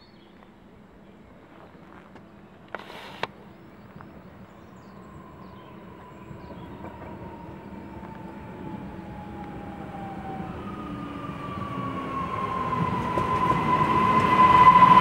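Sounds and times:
train rumble: 0.7 - 15.0
train whine sliding down: 4.8 - 15.0.

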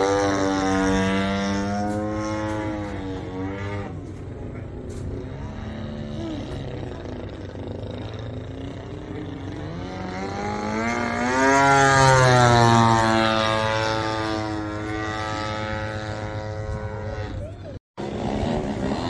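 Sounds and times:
model airplane engine flyby: 0.0 - 19.0.

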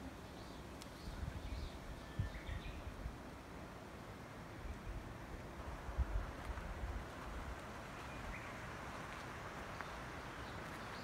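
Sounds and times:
faint outdoor hiss: 0.0 - 11.0
wind buffeting microphone: 1.1 - 3.2.

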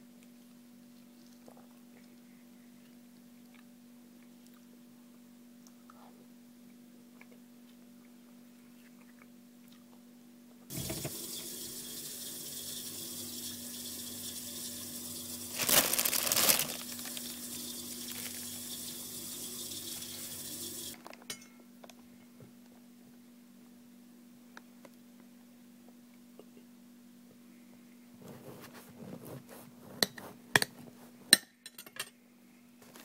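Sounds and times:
water running from a tap: 10.7 - 15.6, 16.2 - 21.0.

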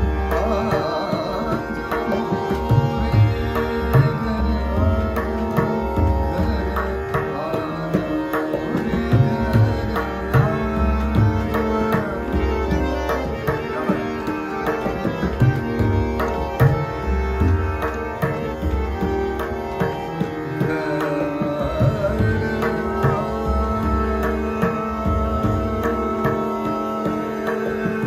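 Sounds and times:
man singing ornamented vocals: 0.0 - 16.8, 20.5 - 28.0
harmonium: 0.0 - 28.0
tabla strokes: 0.0 - 28.0.

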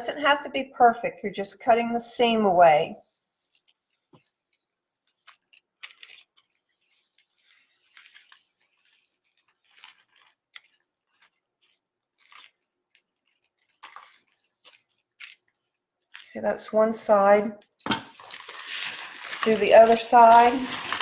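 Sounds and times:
plastic sheet crinkling: 3.2 - 16.5, 17.8 - 21.0.

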